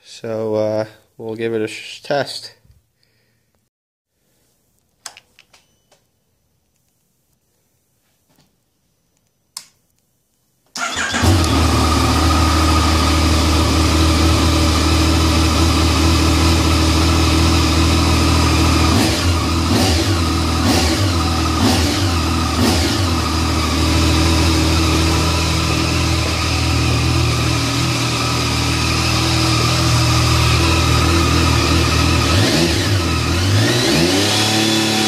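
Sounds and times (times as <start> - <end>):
engine revving: 10.8 - 35.0
motorcycle engine starting and idling: 10.8 - 35.0.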